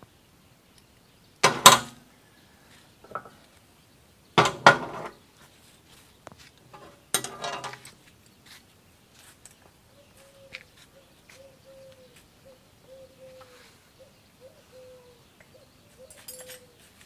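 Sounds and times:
steel parts clanking and rattling: 0:01.4 - 0:02.0, 0:03.0 - 0:03.4, 0:04.4 - 0:05.2, 0:06.7 - 0:07.9.

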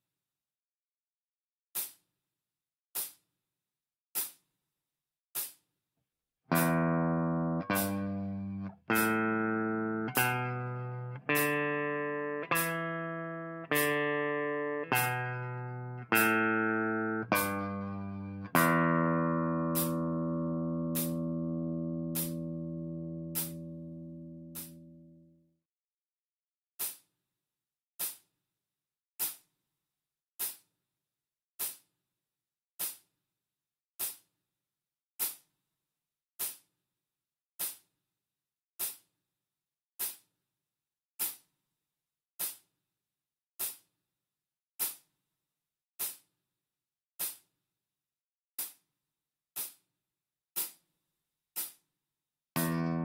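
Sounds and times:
metronome clicking: 0:06.5 - 0:24.9, 0:52.6 - 0:53.0.

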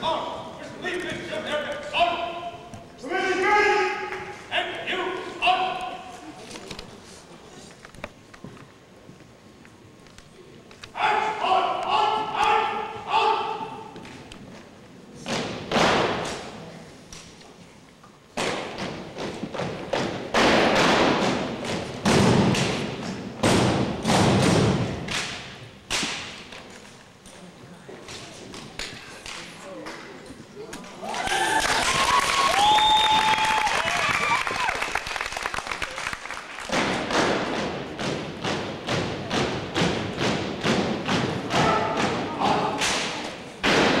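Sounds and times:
rifles and boots striking in unison: 0:18.4 - 0:26.5, 0:42.8 - 0:44.0.

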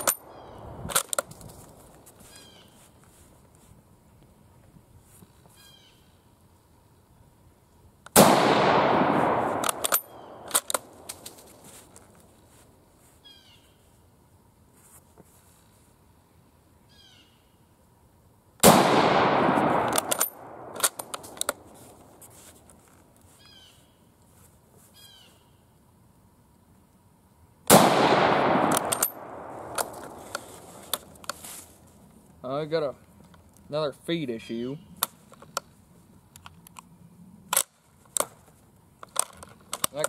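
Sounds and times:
rifle shot echoing: 0:08.1 - 0:11.1, 0:18.6 - 0:21.7, 0:27.7 - 0:30.7
sharp clicks: 0:09.3 - 0:11.4, 0:19.7 - 0:21.7, 0:28.5 - 0:31.4.

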